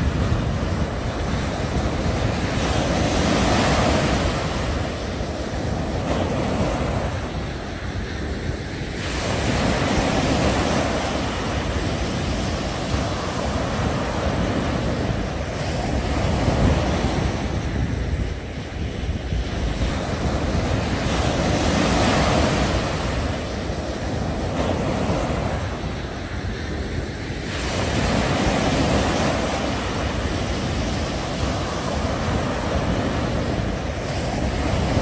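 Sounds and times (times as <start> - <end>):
small waves breaking on sand: 0.0 - 35.0
wind on microphone: 0.0 - 35.0.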